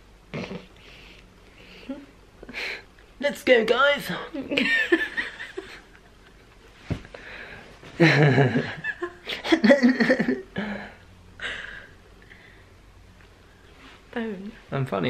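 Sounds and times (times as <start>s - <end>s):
people laughing: 8.0s - 10.5s.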